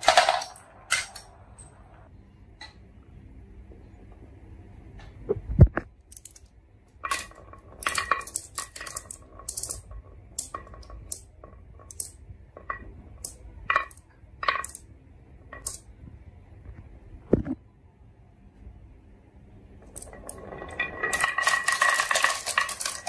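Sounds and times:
glass marbles clinking: 19.8s - 23.0s.

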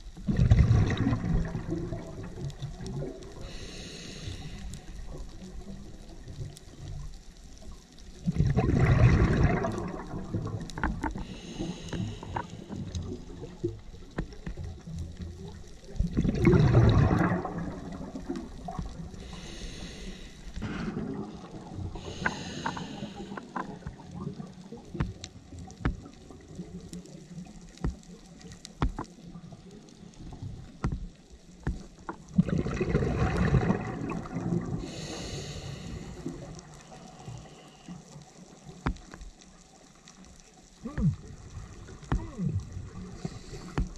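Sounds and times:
bubbling exhalations: 0.2s - 4.6s, 8.2s - 13.8s, 16.0s - 25.2s, 32.2s - 36.6s, 40.8s - 43.9s
regulator hissing inhalations: 3.4s - 5.0s, 11.2s - 12.8s, 19.2s - 20.8s, 22.0s - 23.6s, 34.8s - 38.0s, 43.1s - 43.9s
faint clicks: 9.6s - 16.2s, 21.9s - 32.4s, 34.8s - 43.9s.

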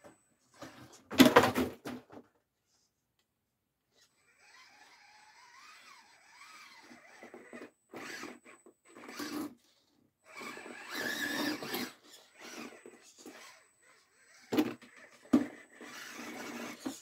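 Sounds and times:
rc crawler motor whining: 3.9s - 17.0s.

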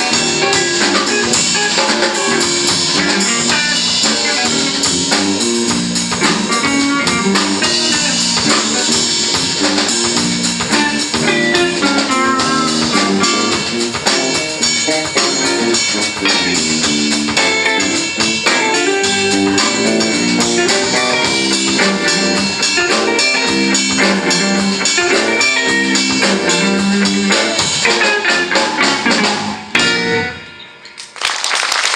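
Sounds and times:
funk band playing: 0.0s - 31.2s.

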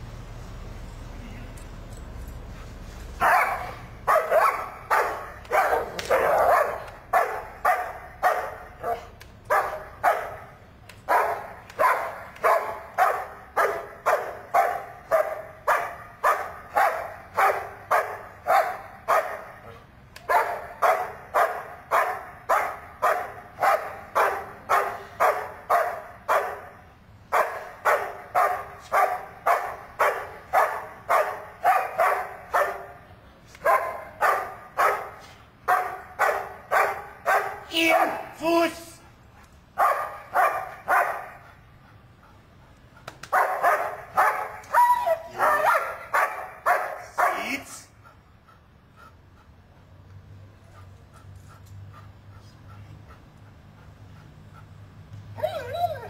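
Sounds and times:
large dog barking rhythmically: 3.2s - 38.7s, 39.7s - 41.5s, 43.3s - 47.6s.

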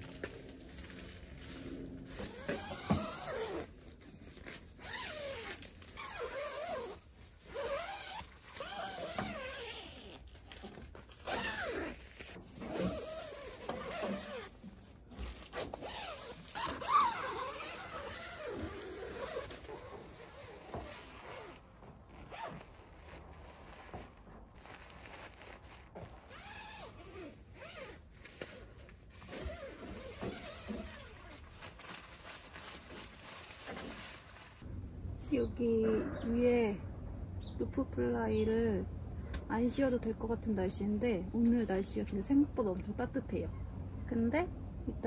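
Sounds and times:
tent zips and fabric scratching: 0.0s - 14.6s, 15.3s - 34.6s.

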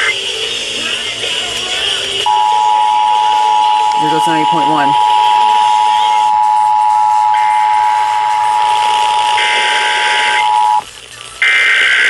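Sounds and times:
screechy data bursts: 2.0s - 12.0s
harsh two-tone alert signal: 2.3s - 10.8s.

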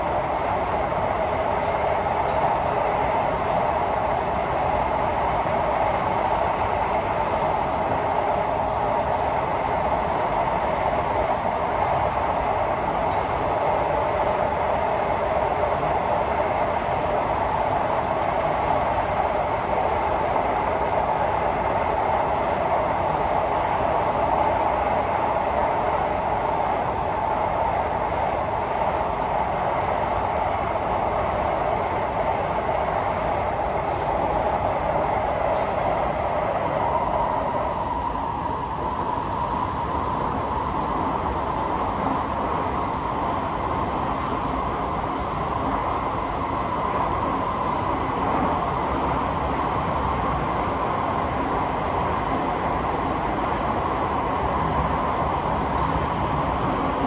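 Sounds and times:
faint steady whine: 0.0s - 57.0s
train wheels rumbling on rails: 0.0s - 57.0s.

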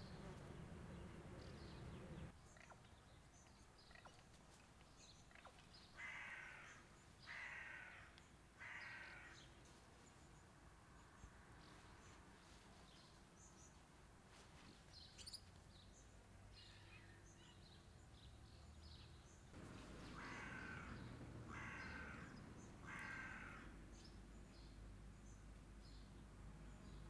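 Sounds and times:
small birds chirping: 0.0s - 13.9s, 14.6s - 27.0s
crow cawing: 6.0s - 9.4s, 19.6s - 23.8s.

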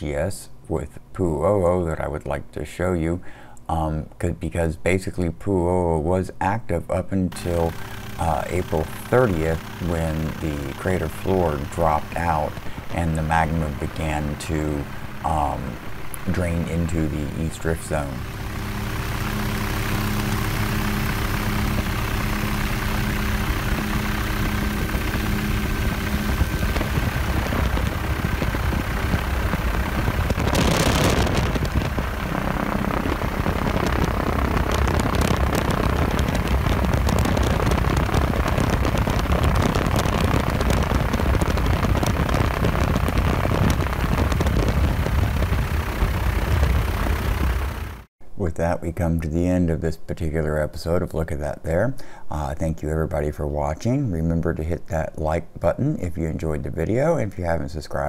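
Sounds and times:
helicopter rotor and engine: 7.3s - 48.1s
wind rush: 13.6s - 48.0s.

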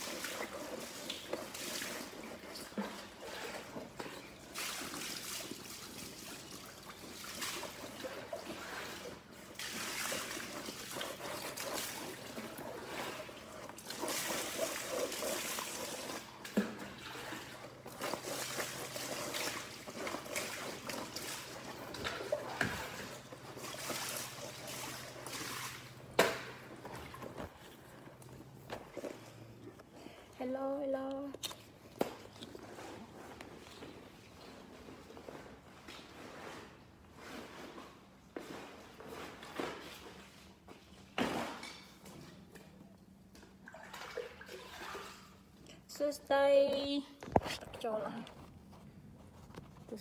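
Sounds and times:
water trickling and splashing: 0.0s - 27.7s, 43.4s - 45.6s.

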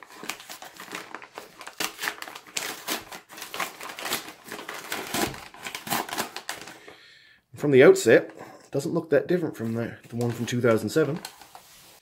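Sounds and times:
stiff paper bag tearing: 0.0s - 6.7s.

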